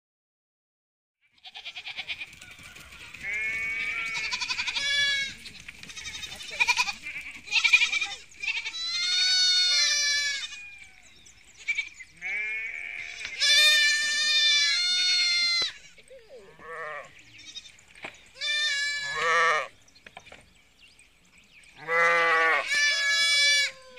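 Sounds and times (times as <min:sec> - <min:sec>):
sheep bleating: 0:01.2 - 0:02.3, 0:03.2 - 0:10.8, 0:11.6 - 0:17.7, 0:18.4 - 0:19.7, 0:21.8 - 0:23.9.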